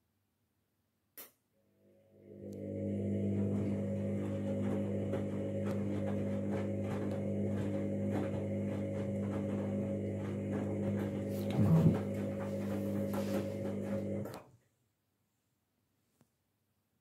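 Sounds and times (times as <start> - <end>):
washing machine hum: 2.0 - 14.6.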